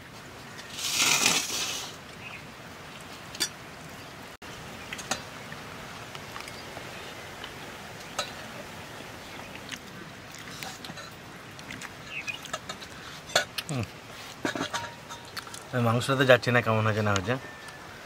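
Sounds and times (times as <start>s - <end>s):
short hissing rush: 0.7s - 2.0s.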